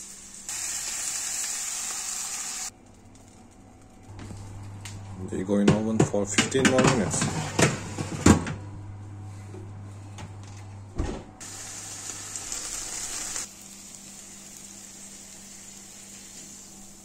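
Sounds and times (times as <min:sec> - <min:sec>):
vegetables sizzling in a pan: 0:00.0 - 0:02.7, 0:11.4 - 0:17.0
oven door thumping shut: 0:11.0 - 0:11.3.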